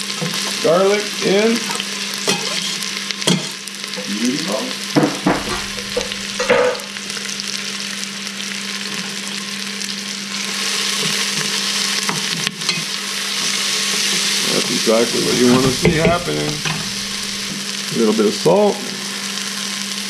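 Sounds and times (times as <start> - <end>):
onion and garlic sizzling in oil: 0.0 - 20.0
knife knocking on pot: 5.0 - 6.8, 15.5 - 17.3.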